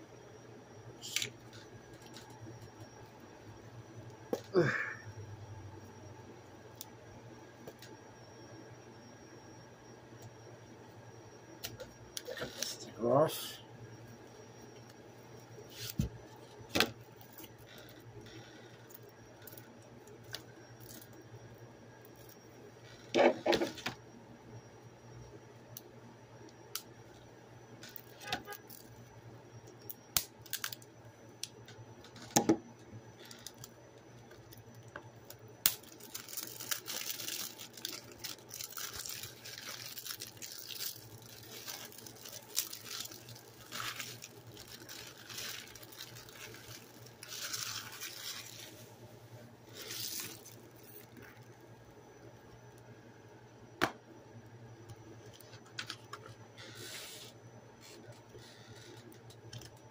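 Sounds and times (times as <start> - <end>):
plastic wrap crackling: 35.7 - 48.8, 49.7 - 51.4.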